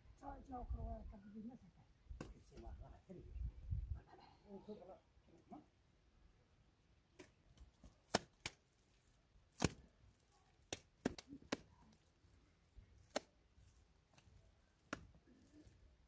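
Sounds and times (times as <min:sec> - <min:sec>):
wet mud slapped onto wall: 0:07.2 - 0:08.6, 0:09.5 - 0:09.9, 0:10.6 - 0:11.7, 0:13.0 - 0:13.3.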